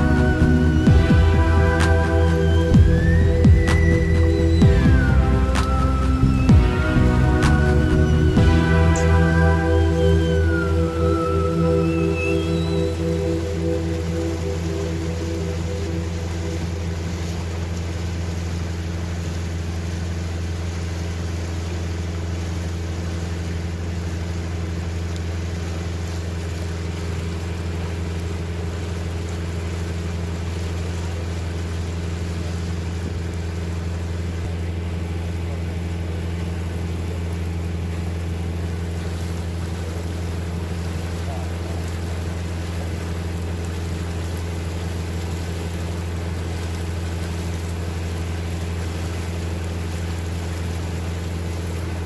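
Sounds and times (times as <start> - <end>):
boat engine humming: 0.0 - 52.0
water hissing along hull: 36.0 - 52.0.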